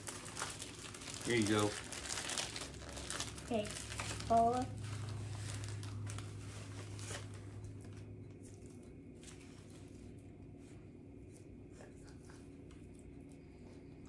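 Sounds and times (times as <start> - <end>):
plastic bag rustling: 0.0 - 10.2.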